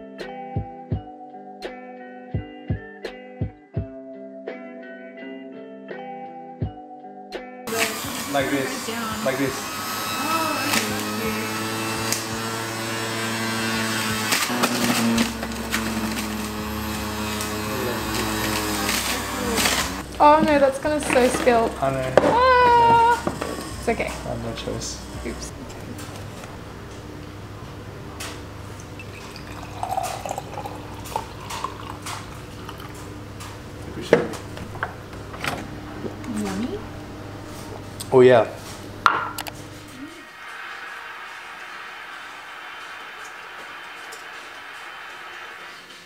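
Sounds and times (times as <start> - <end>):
electric juicer motor running: 7.7 - 38.2, 38.8 - 46.0
juice pouring into glass: 28.8 - 33.0.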